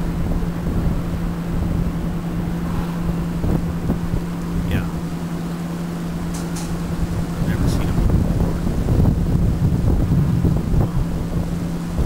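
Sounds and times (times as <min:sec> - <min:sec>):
low mechanical hum of machinery: 0:00.0 - 0:12.0
wind on microphone: 0:00.0 - 0:12.0.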